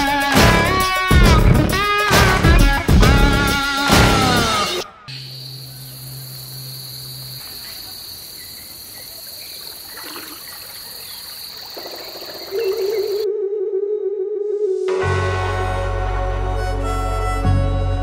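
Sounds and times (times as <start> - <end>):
insect chorus drone: 5.1 - 13.8.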